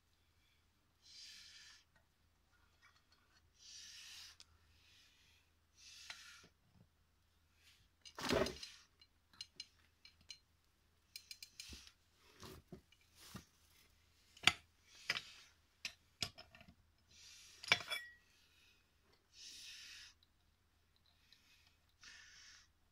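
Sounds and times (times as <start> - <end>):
metal parts and tools clinking: 17.6 - 18.2.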